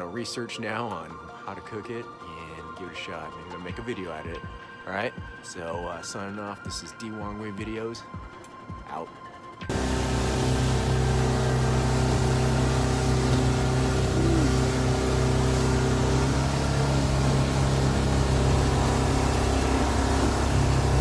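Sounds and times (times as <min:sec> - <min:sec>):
boat engine running: 0:09.7 - 0:21.0
rushing wake water: 0:09.7 - 0:21.0.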